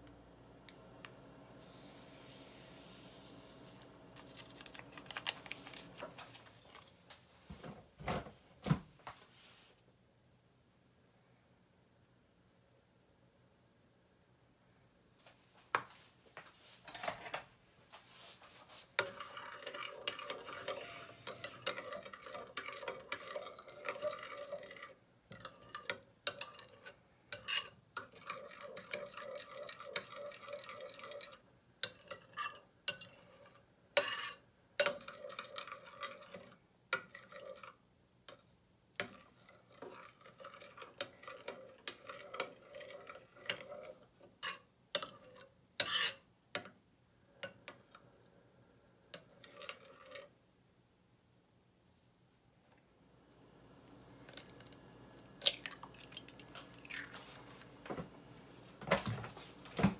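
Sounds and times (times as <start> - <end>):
spoon scraping ceramic bowl: 18.7 - 37.8, 39.0 - 46.3, 49.1 - 50.3.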